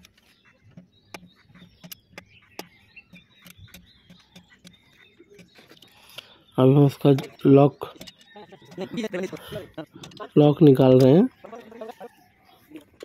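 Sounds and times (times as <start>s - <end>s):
metallic clicks and taps: 0.0s - 6.3s, 7.1s - 9.4s, 10.0s - 11.2s
birds chirping: 0.0s - 13.0s.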